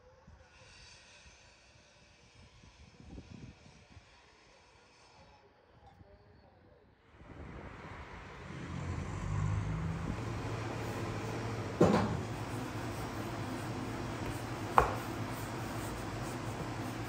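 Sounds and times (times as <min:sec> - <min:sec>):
steady low hum: 0:07.2 - 0:17.0
sharp knock: 0:14.8 - 0:15.0.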